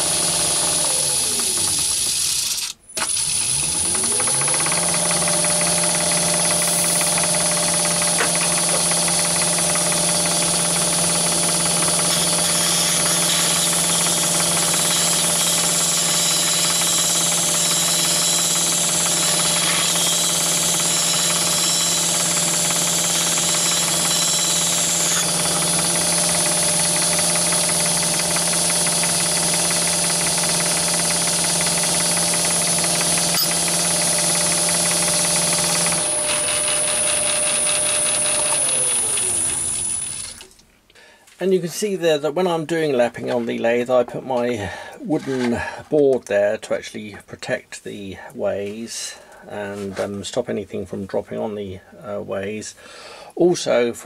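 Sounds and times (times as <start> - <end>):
lathe running: 0.0 - 40.5
grinding hiss: 5.8 - 9.0.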